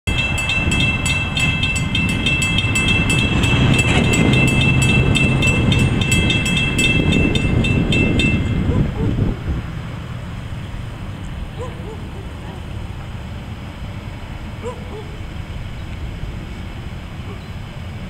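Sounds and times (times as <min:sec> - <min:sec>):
railroad crossing bells clanging: 0:00.1 - 0:09.2.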